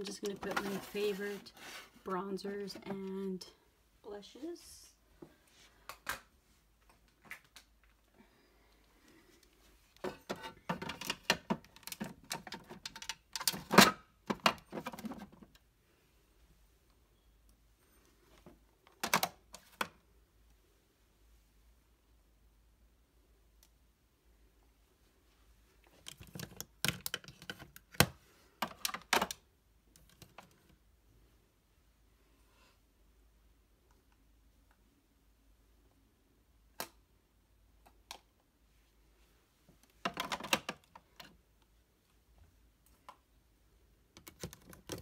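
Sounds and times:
plastic containers clattering: 0:00.1 - 0:01.4, 0:10.0 - 0:15.5, 0:40.0 - 0:41.0.

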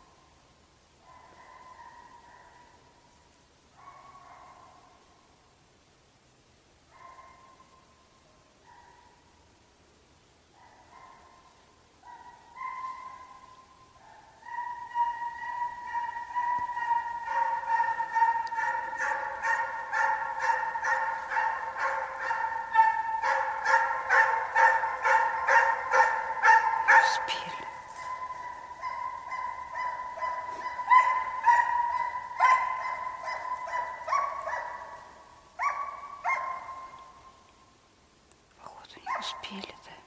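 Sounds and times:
hounds baying and yelping: 0:01.0 - 0:02.9, 0:03.8 - 0:05.0, 0:06.9 - 0:07.9, 0:10.6 - 0:37.5, 0:39.0 - 0:39.5.

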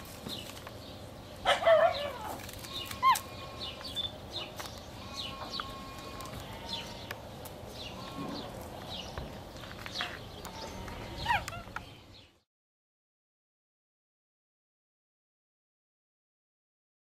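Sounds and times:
small birds chirping: 0:00.0 - 0:12.5.

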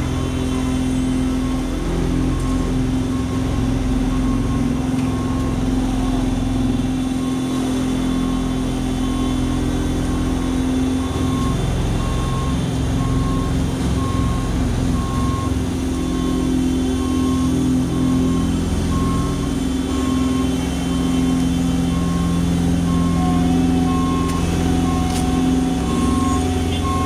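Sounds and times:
diesel engine humming: 0:00.0 - 0:27.0
backup alarm beeping: 0:01.5 - 0:09.4, 0:11.0 - 0:27.0.

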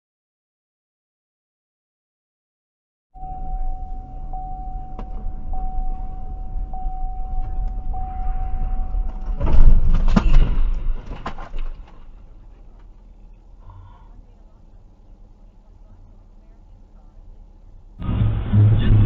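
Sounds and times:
high electronic tone: 0:03.2 - 0:09.7
road rumble inside car: 0:03.2 - 0:19.0
loud knocks and thuds: 0:09.0 - 0:12.0.

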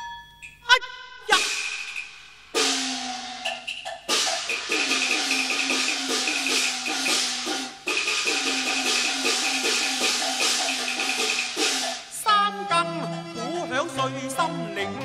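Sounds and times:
rapid ticking beat: 0:01.4 - 0:12.1.

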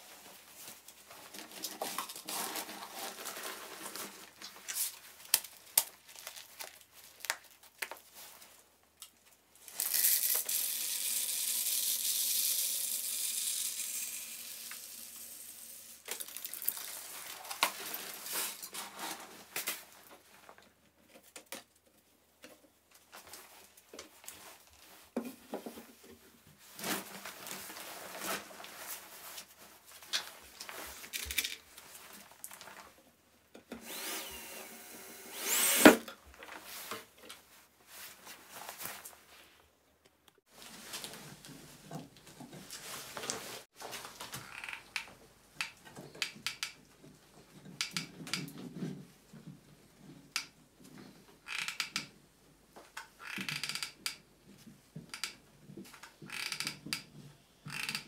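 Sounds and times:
plastic crinkling and rustling: 0:00.1 - 0:10.5, 0:16.0 - 0:20.7.

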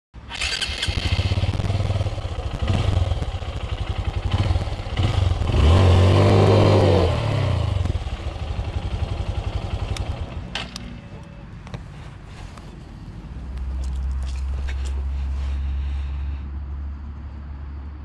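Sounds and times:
dirt bike engine revving: 0:00.3 - 0:08.0.

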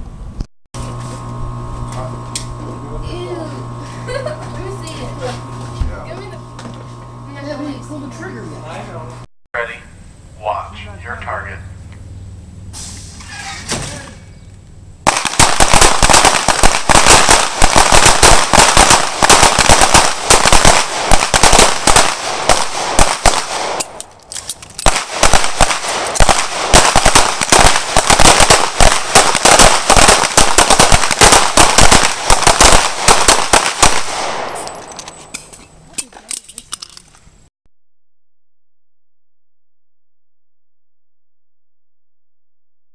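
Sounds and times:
handgun shots barrage: 0:15.1 - 0:24.1, 0:24.8 - 0:35.5.

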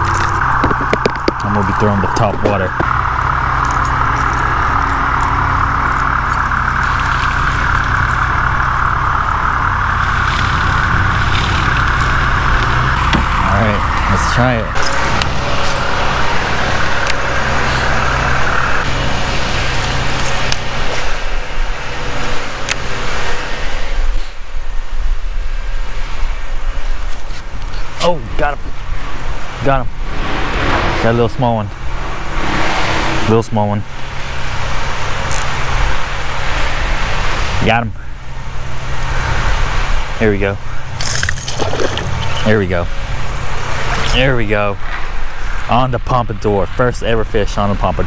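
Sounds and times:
electric trolling motor drone: 0:00.0 - 0:24.2.

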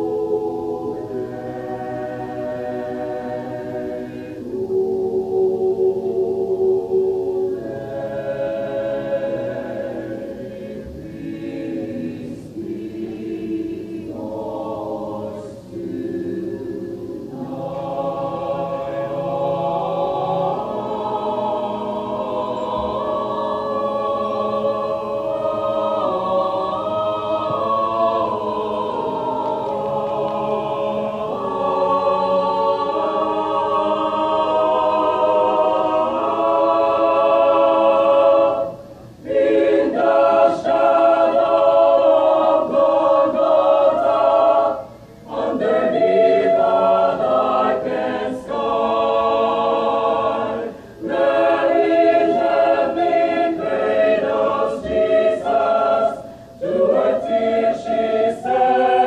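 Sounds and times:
mixed choir singing unaccompanied: 0:00.0 - 0:59.0.

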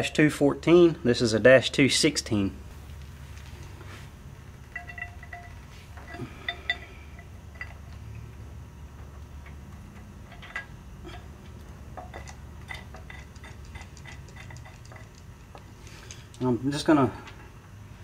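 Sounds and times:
low steady hum: 0:00.0 - 0:18.0
metallic clinks and pings: 0:04.7 - 0:07.0.

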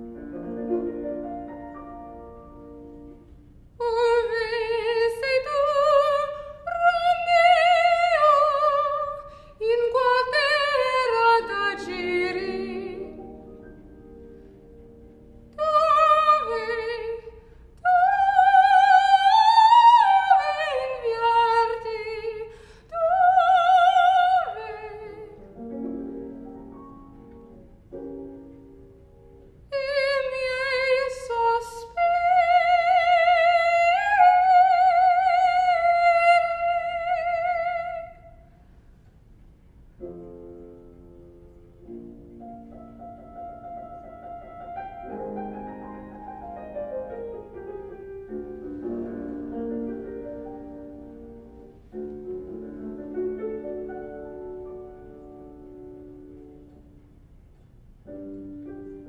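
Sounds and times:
piano accompaniment: 0:00.0 - 0:38.2, 0:39.9 - 0:59.0
soprano singing: 0:00.0 - 0:38.5.

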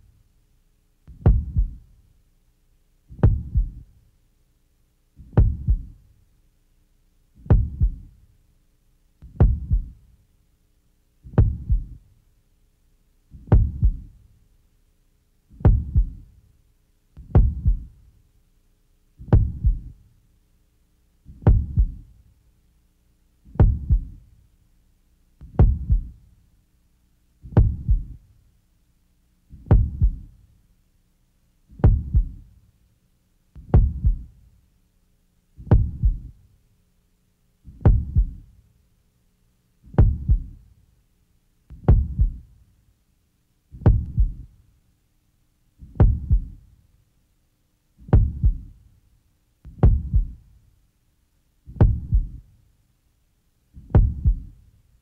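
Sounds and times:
heartbeat double thump: 0:01.1 - 0:01.8, 0:03.2 - 0:03.9, 0:05.2 - 0:06.0, 0:07.5 - 0:08.1, 0:09.2 - 0:10.0, 0:11.3 - 0:12.0, 0:13.4 - 0:14.1, 0:15.6 - 0:16.3, 0:17.2 - 0:18.0, 0:19.2 - 0:20.0, 0:21.4 - 0:22.1, 0:23.6 - 0:24.2, 0:25.4 - 0:26.2, 0:27.4 - 0:28.2, 0:29.6 - 0:30.3, 0:31.8 - 0:32.4, 0:33.6 - 0:34.3, 0:35.6 - 0:36.4, 0:37.7 - 0:38.4, 0:39.9 - 0:40.6, 0:41.7 - 0:42.5, 0:43.8 - 0:44.5, 0:45.8 - 0:46.6, 0:48.0 - 0:48.8, 0:49.7 - 0:50.4, 0:51.7 - 0:52.4, 0:53.8 - 0:54.6.

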